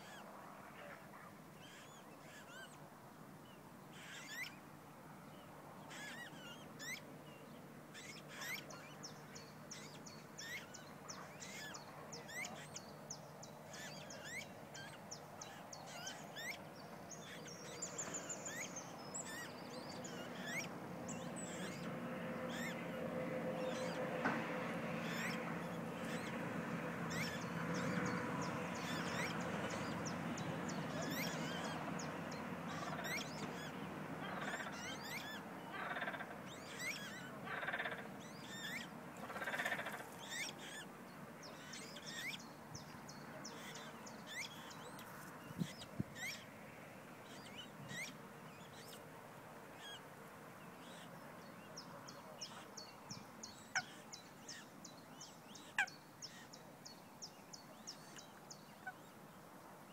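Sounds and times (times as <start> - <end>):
songbirds chirping: 0.0 - 59.9
waterbirds honking: 18.0 - 42.4, 53.6 - 54.7.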